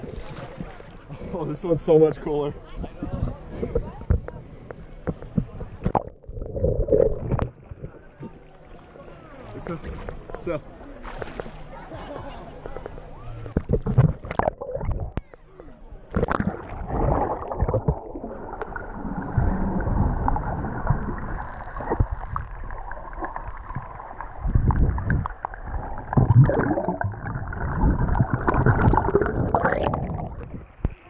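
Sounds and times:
underwater churning and bubbling: 0.0s - 1.3s, 3.0s - 9.1s, 11.6s - 31.0s
low underwater thumps: 16.2s - 31.0s.

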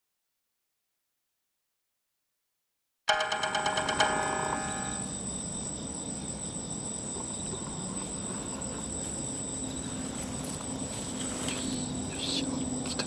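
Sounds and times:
ringing tone: 3.1s - 5.2s
night insects calling: 3.1s - 13.0s.

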